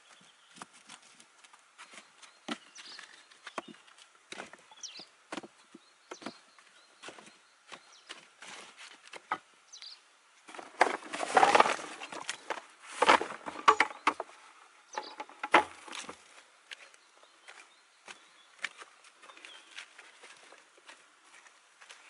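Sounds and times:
dry sticks clattering onto ground: 10.5 - 14.2, 15.0 - 16.2.

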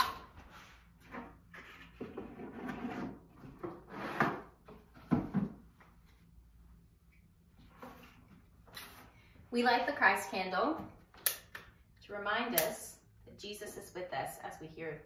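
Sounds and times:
objects scraping on shelf: 0.5 - 4.6.

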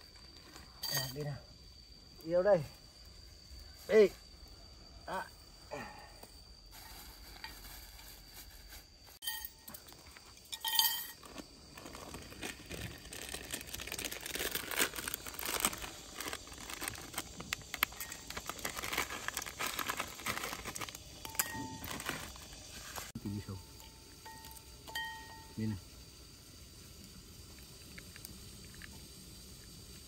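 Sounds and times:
plastic packaging crinkling: 11.2 - 23.1.

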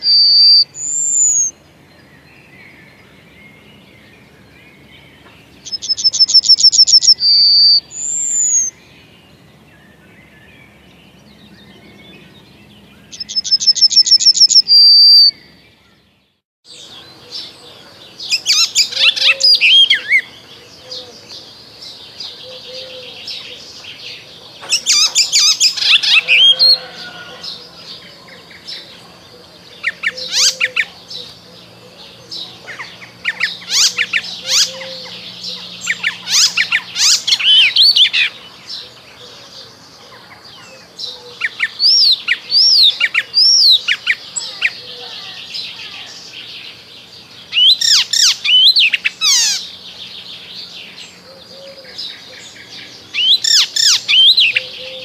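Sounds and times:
warbler singing varied sweeping notes: 0.0 - 55.0.

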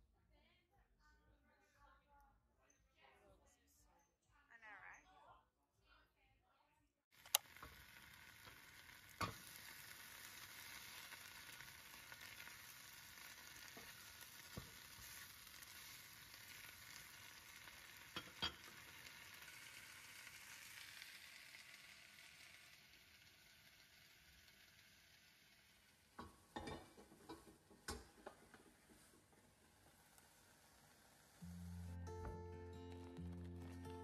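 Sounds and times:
spinach sizzling in a pan: 7.2 - 34.0.

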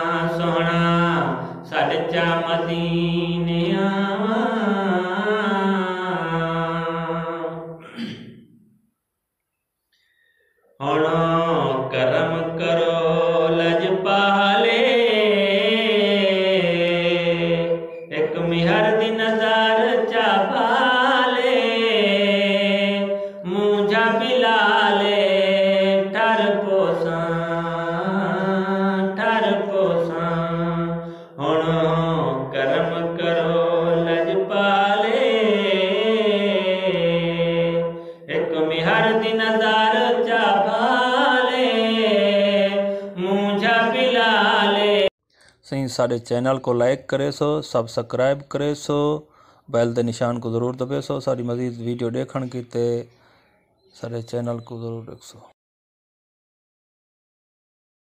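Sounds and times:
man singing devotional song: 0.0 - 7.8, 10.8 - 53.2, 54.0 - 55.6
man breathing: 9.8 - 10.8, 31.0 - 31.4, 38.0 - 38.3, 45.2 - 45.6, 49.3 - 49.7, 53.1 - 53.6.

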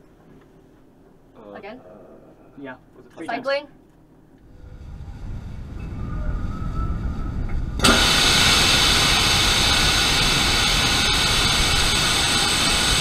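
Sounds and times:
low rush: 4.4 - 13.0
loud gas hiss: 7.1 - 13.0.

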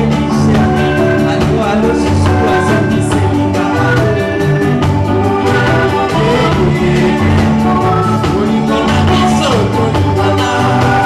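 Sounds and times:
bass guitar: 0.0 - 11.0
drums: 0.0 - 11.0
electric guitars: 0.0 - 11.0
woman singing: 0.0 - 11.0.

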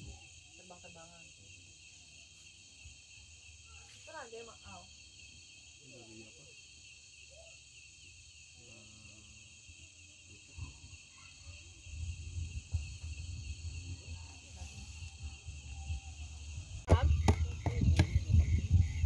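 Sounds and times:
crickets and insects chirping: 0.0 - 19.0
knocks: 16.9 - 18.2.

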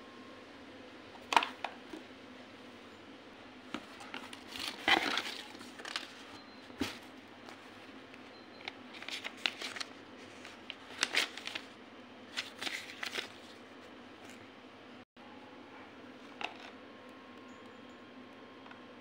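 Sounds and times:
cardboard and paper rustling: 3.7 - 7.8, 8.9 - 11.7, 12.3 - 13.6.

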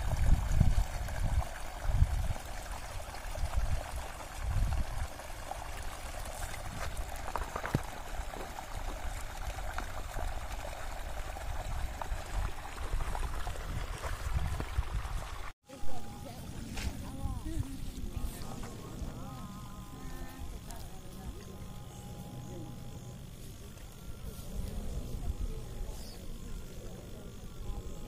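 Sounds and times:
water pouring from pipe: 0.0 - 15.5.

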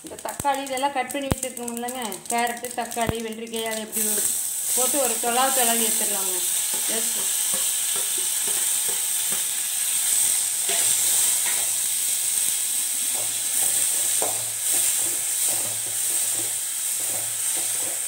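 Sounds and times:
vegetables sizzling in hot oil: 0.0 - 18.0
metal ladle scraping a pan: 10.6 - 11.8.

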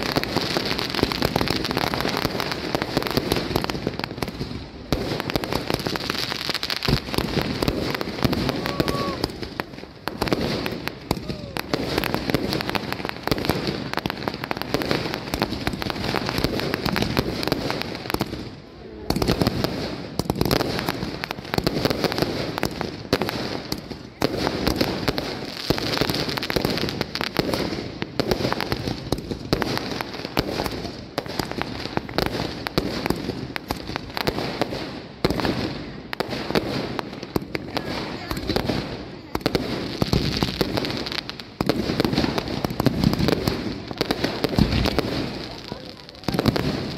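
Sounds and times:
fireworks banging: 0.0 - 46.9.

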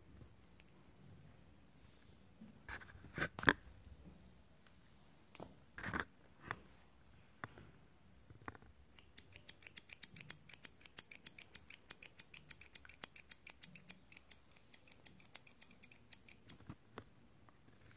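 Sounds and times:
thread snips clicking: 8.9 - 16.6.

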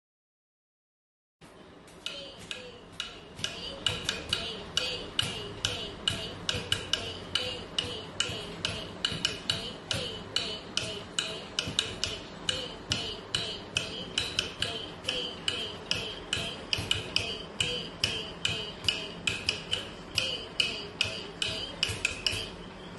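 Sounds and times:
bare feet striking tiled floor: 1.8 - 7.2
steady time-keeping beat: 1.9 - 22.9.

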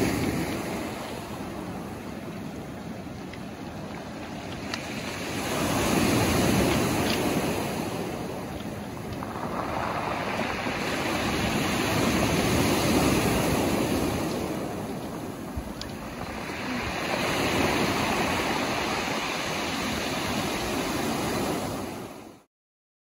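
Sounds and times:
surf breaking on pebble beach: 4.3 - 22.2.

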